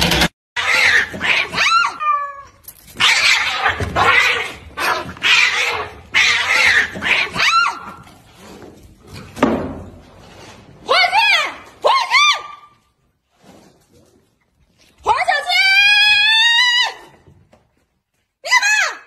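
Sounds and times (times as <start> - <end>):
cats yowling and screeching: 0.6 - 8.1.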